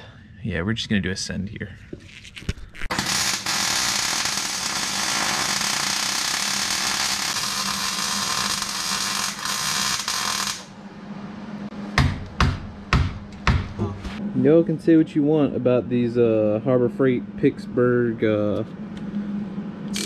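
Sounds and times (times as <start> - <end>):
arc welder crackling: 2.6 - 10.8
sharp knocks: 12.0 - 13.9.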